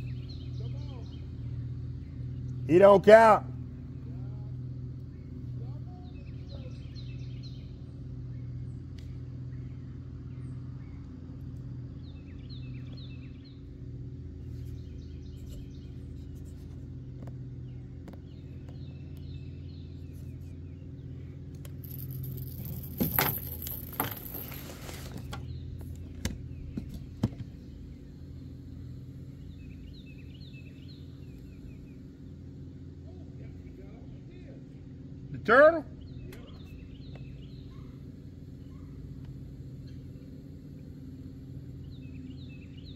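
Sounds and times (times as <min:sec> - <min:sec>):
small birds chirping: 0:00.0 - 0:02.7, 0:05.0 - 0:35.3, 0:35.9 - 0:42.9
low hum: 0:07.4 - 0:35.0
rustling and crackling: 0:21.8 - 0:26.2.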